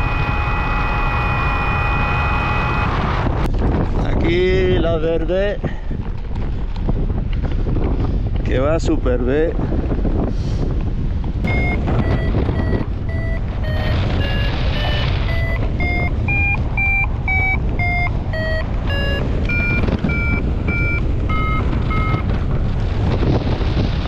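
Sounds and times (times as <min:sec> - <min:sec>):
variometer beeps: 0:00.0 - 0:03.0, 0:11.4 - 0:22.4
wind on microphone: 0:00.0 - 0:24.0.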